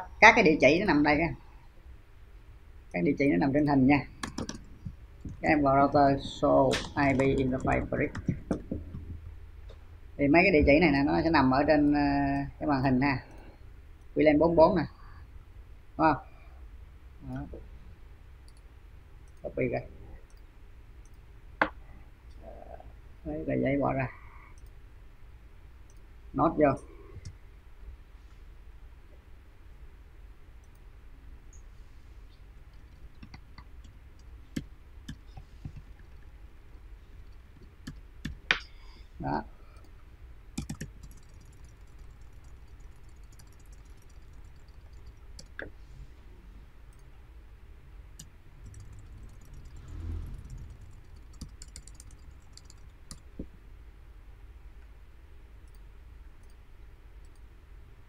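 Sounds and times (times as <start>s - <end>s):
faint low hum: 0.0s - 58.0s
computer mouse clicks: 4.2s - 5.4s, 40.6s - 45.7s, 48.2s - 53.5s.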